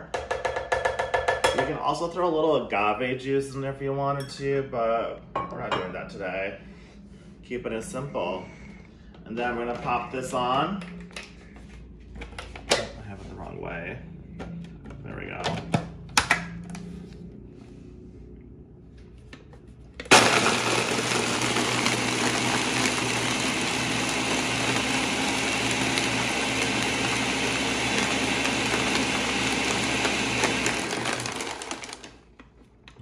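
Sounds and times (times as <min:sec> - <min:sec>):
blender crushing ice: 0:20.0 - 0:32.3.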